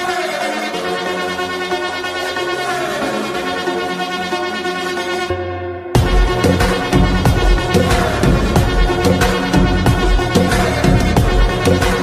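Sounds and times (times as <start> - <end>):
electronic music with heavy bass: 0.0 - 12.0.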